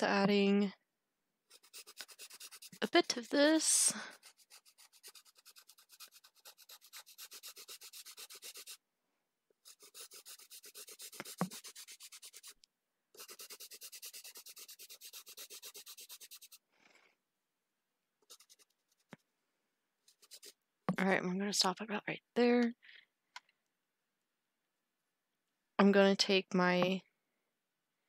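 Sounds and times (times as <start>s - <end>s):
pencil rubbing on paper: 1.5s - 8.8s, 9.6s - 12.6s, 13.2s - 16.7s, 18.2s - 19.1s, 20.1s - 20.6s.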